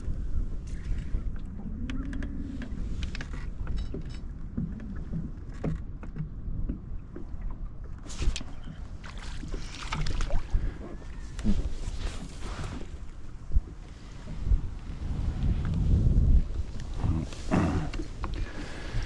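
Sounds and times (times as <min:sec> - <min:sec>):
wind rumbling on microphone: 0:00.0 - 0:19.0
light clicks and knocks: 0:01.8 - 0:07.6.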